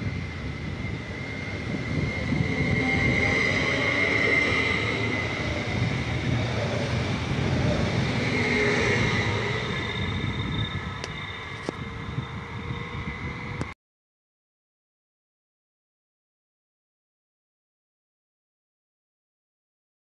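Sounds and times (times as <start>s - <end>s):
train wheels rumbling on rails: 0.0s - 13.8s.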